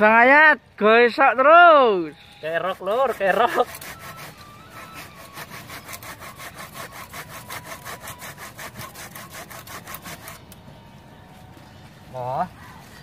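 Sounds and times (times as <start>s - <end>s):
blade sawing through roots: 2.4s - 10.6s, 12.5s - 13.0s.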